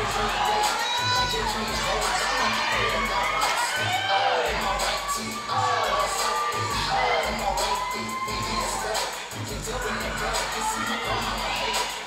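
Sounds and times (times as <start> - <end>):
audience cheering and shouting: 0.0 - 12.0
music with bass beat: 0.0 - 12.0.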